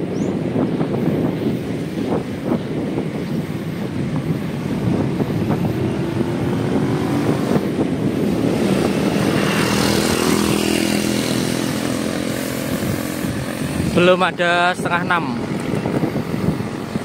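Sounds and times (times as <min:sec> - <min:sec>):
wind rushing over microphone: 0:00.0 - 0:17.0
vehicle engine passing by: 0:05.4 - 0:14.2.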